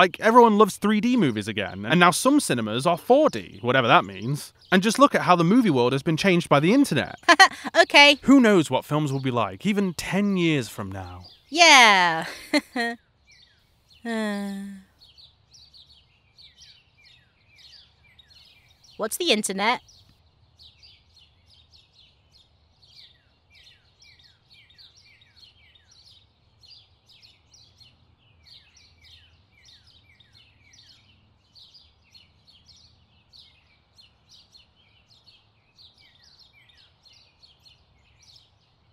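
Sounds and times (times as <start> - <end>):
birds chirping: 0.0 - 13.0, 18.9 - 19.8.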